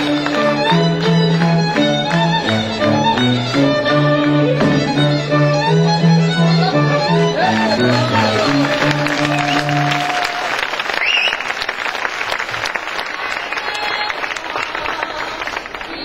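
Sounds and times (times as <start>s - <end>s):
bowed cello bass line: 0.0s - 10.2s
fiddles playing melody: 0.0s - 10.5s.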